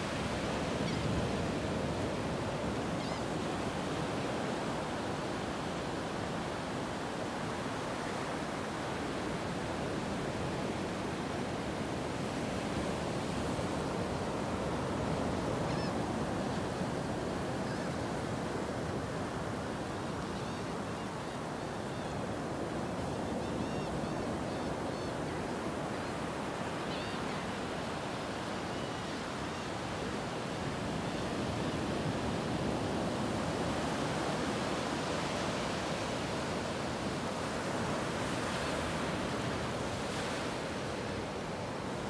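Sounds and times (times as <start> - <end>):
small waves breaking on beach: 27.9 - 42.0.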